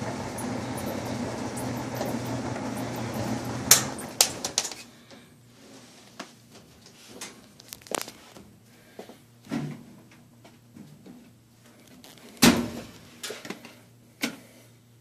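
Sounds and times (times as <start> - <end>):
clothes dryer humming: 0.0 - 7.4.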